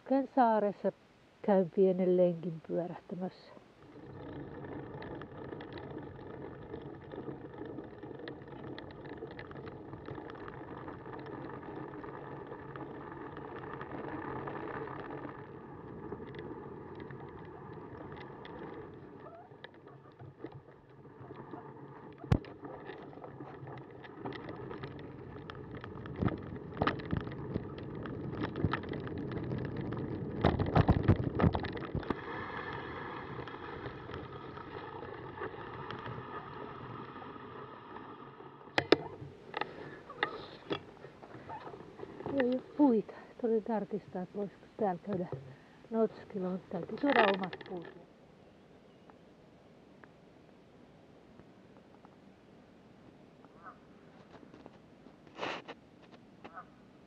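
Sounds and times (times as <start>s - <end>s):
bicycle tyres rolling on gravel: 1.7s - 48.6s, 51.4s - 56.6s
bicycle rattles and knocks: 3.8s - 43.6s, 44.8s - 48.0s.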